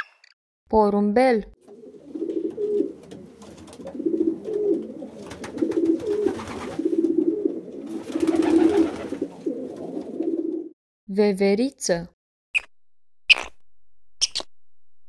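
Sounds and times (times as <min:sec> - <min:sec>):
pigeons cooing: 0:01.6 - 0:10.8.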